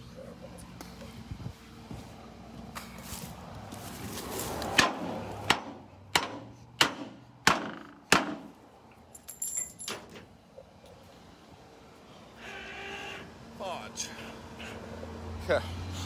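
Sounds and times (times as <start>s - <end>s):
sharp crunchy knocks: 4.7s - 8.6s.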